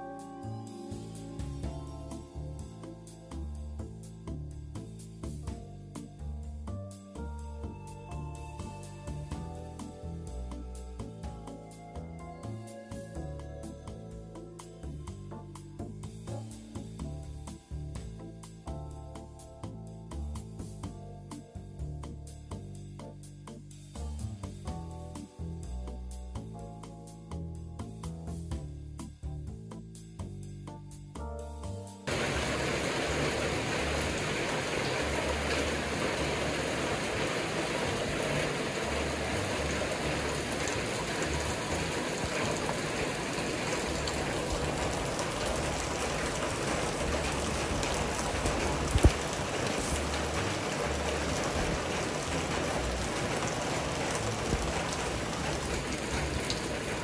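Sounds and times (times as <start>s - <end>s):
heavy rain: 32.1s - 57.0s.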